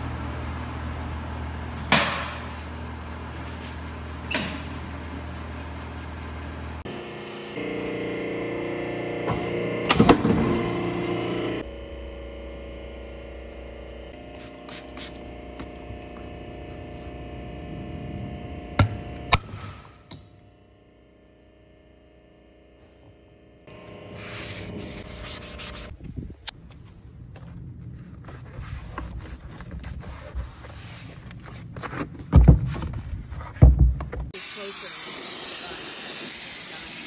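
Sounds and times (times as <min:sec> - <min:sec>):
hydraulic press striking: 0:01.8 - 0:02.5.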